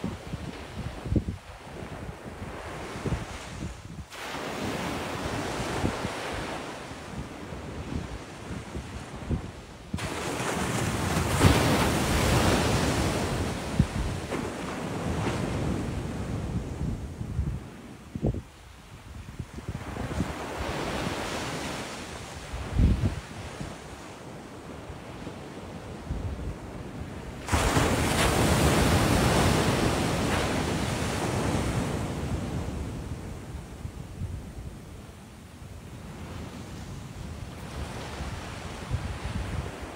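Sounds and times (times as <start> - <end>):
wind buffeting microphone: 0.0 - 24.0, 25.8 - 39.9
wave crashing on beach: 10.0 - 16.0, 27.4 - 32.6.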